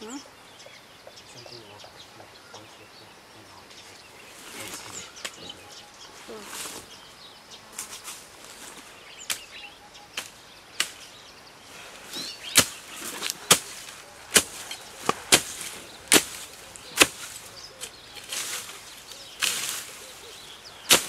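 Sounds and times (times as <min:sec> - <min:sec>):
faint bird chirps: 0:00.0 - 0:21.0.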